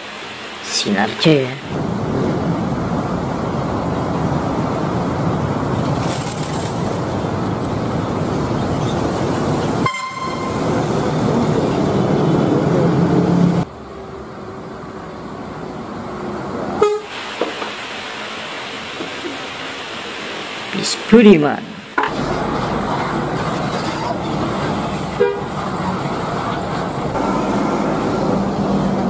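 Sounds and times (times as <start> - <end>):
bus engine running: 0.0 - 20.7, 21.8 - 29.0
street traffic noise: 0.0 - 29.0
short horn toot: 9.8 - 10.7, 16.8 - 17.1.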